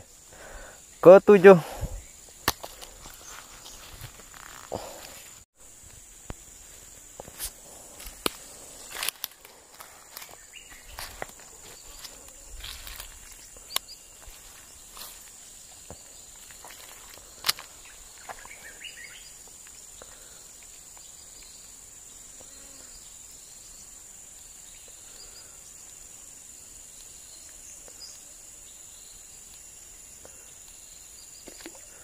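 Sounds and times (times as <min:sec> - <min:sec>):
insects droning: 0:00.0 - 0:32.0
faint chirps: 0:09.9 - 0:32.0.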